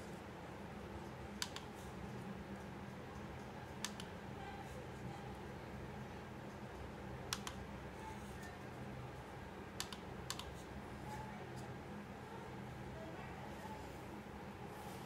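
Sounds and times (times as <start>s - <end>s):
computer mouse clicks: 1.4s - 1.7s, 3.1s - 4.1s, 7.3s - 7.6s, 9.8s - 10.6s.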